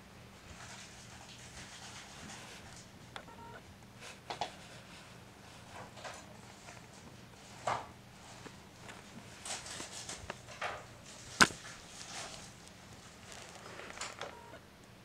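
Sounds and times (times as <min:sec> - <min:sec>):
paw rustling against camera: 0:04.4 - 0:14.3.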